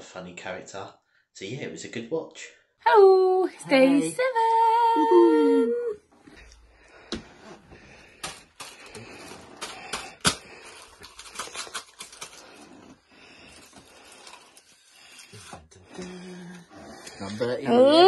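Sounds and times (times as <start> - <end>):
hands tapping foil cups: 8.2 - 12.4.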